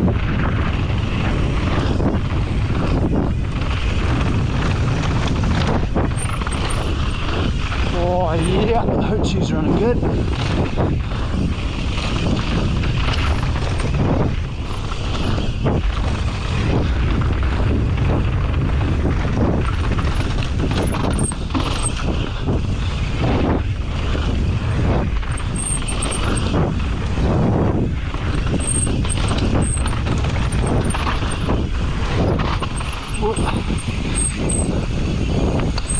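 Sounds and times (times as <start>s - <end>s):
bike tyres rolling on dirt: 0.0s - 35.9s
low rumble: 0.0s - 35.9s
chain and frame rattling: 5.6s - 9.4s, 12.0s - 15.9s, 19.4s - 22.2s, 25.2s - 26.6s, 28.2s - 35.9s.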